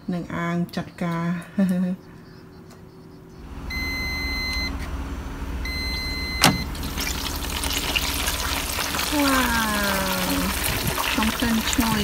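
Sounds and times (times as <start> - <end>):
air fryer fan humming: 0.4 - 12.0
long electronic beeps: 3.4 - 4.9, 5.6 - 6.7
air fryer basket click: 6.3 - 6.7
hot meat sizzling: 6.7 - 12.0.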